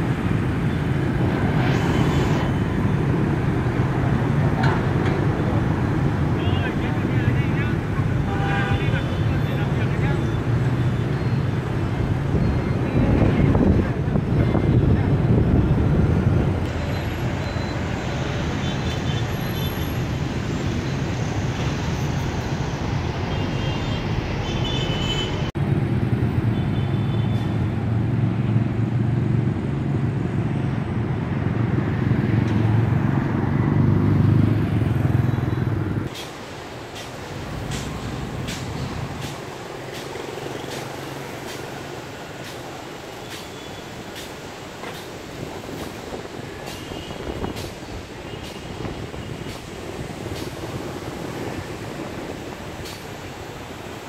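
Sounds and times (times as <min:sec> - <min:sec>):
motorbike and car engines passing: 0:27.5 - 0:36.1.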